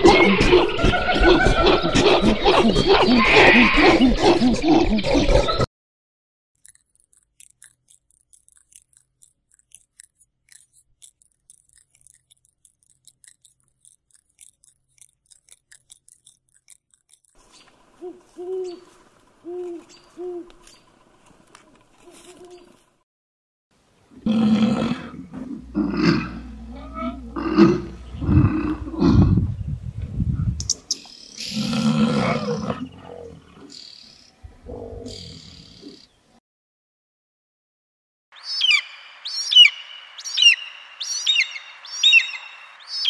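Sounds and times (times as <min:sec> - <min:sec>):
owl hooting: 0:17.9 - 0:20.8, 0:38.4 - 0:43.0
loud dense jumble of sound: 0:24.2 - 0:29.4.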